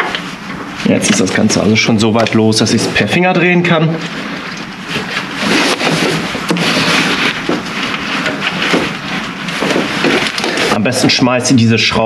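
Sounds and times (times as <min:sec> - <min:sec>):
rustling and scraping: 0:04.0 - 0:11.0.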